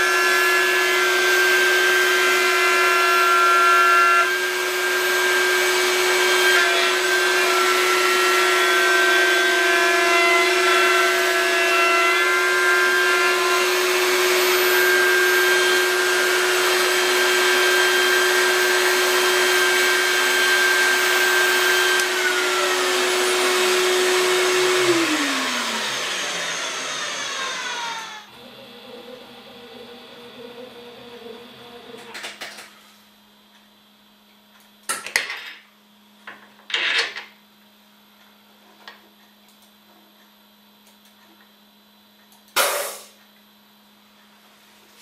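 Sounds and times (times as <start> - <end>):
router spindle running: 0.0 - 30.4
vacuum cleaner hiss: 42.6 - 43.2.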